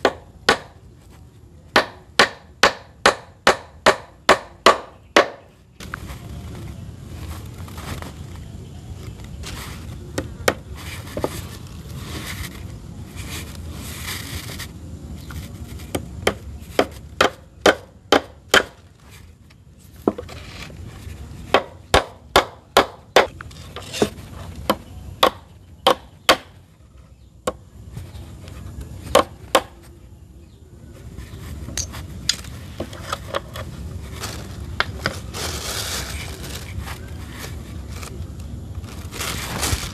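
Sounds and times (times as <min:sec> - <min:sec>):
tool striking wood: 0:00.0 - 0:00.8, 0:01.7 - 0:05.5, 0:15.8 - 0:18.8, 0:21.5 - 0:26.6, 0:29.1 - 0:29.8.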